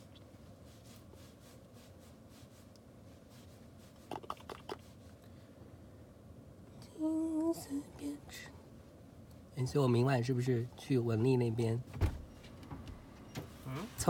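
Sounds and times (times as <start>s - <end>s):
low hum in car cabin: 0.0s - 14.0s.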